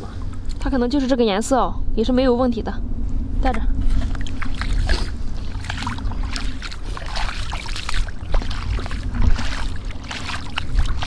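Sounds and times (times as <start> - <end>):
wind rumble on microphone: 0.0 - 11.0
footsteps splashing in water: 3.9 - 11.0.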